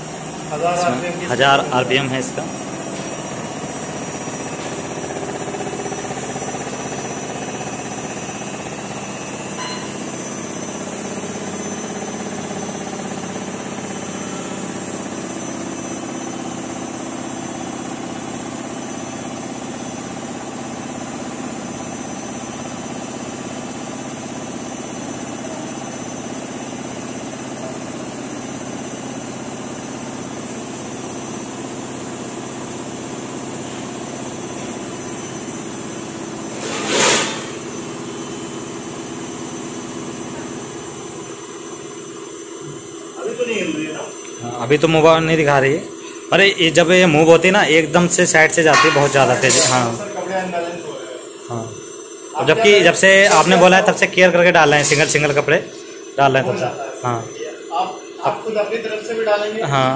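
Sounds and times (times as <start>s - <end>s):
washing machine spinning: 0.0s - 57.2s.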